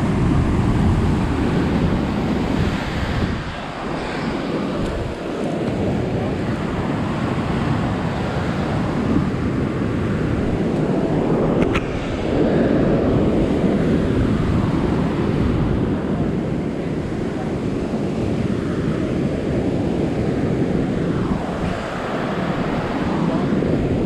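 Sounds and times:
surf washing over boulders: 0.0 - 24.0
wind buffeting microphone: 0.0 - 24.0
brief click: 11.6 - 11.9.

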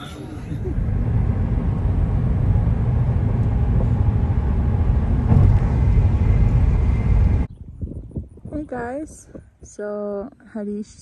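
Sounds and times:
car road noise rumble: 0.0 - 7.5.

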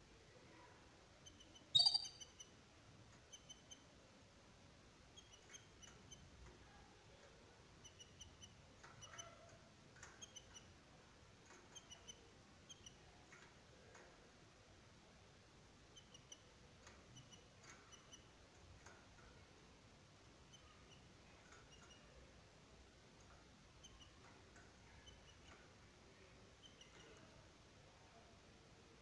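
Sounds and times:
canaries chirping: 1.2 - 2.5, 5.2 - 6.3, 15.9 - 16.5, 23.8 - 25.6, 26.5 - 27.3.

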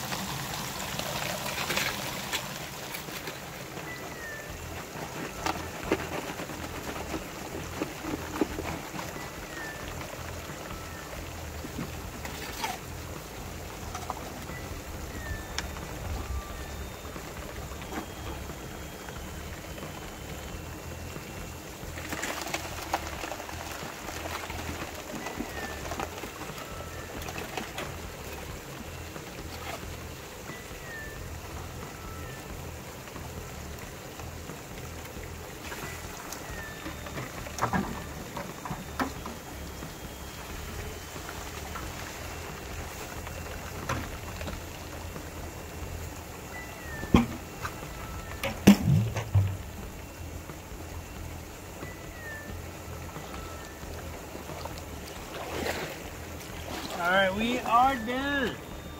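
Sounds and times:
water running through machine: 0.0 - 58.9
bird chirping: 3.7 - 6.2, 13.8 - 22.0, 46.4 - 48.5, 51.8 - 54.1.

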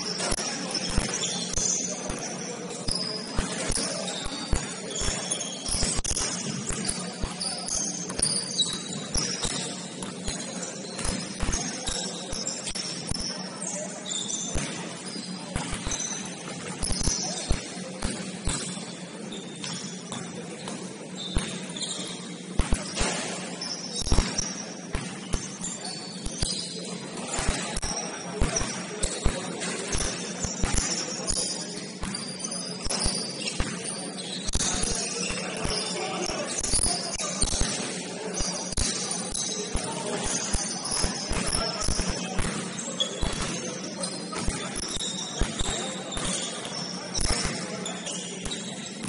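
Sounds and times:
sneakers squeaking: 0.0 - 49.0
basketball bouncing: 0.2 - 13.3, 14.6 - 18.8, 22.6 - 25.7, 27.3 - 31.4, 32.0 - 35.8, 39.8 - 43.7, 44.4 - 47.6.

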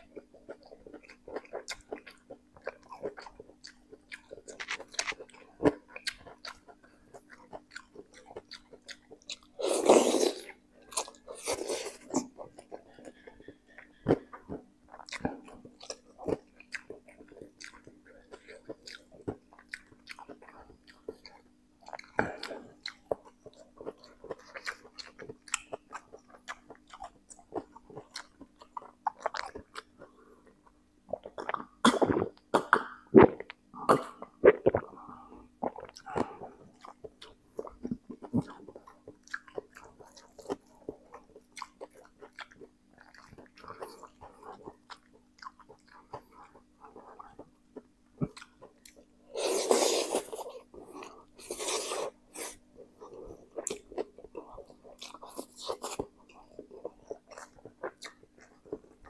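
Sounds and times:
faint steady hum: 0.0 - 59.0
chewing and slurping noodles: 35.6 - 59.0.

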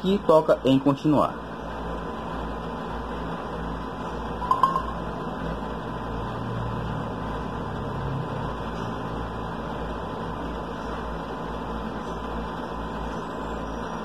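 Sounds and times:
room background hum: 0.0 - 14.0
brief beep: 4.4 - 5.0.

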